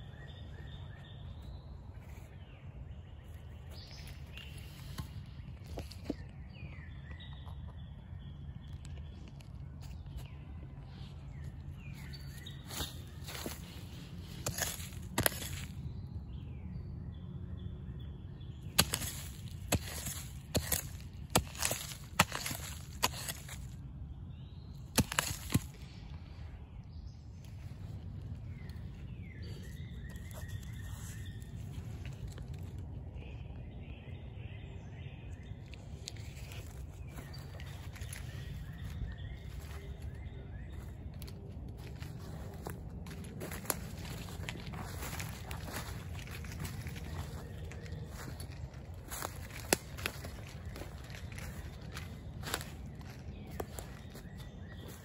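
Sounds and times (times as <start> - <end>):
footsteps crunching dry leaves: 3.2 - 6.8, 9.0 - 16.1, 18.6 - 23.8, 24.8 - 26.2, 27.5 - 33.0, 35.4 - 55.0
bamboo shoot cracking: 18.7 - 23.8, 24.8 - 25.8.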